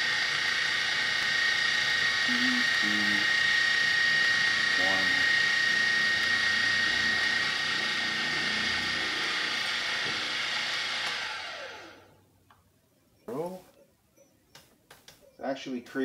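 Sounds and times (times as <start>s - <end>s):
milling machine spindle whine: 0.0s - 12.1s.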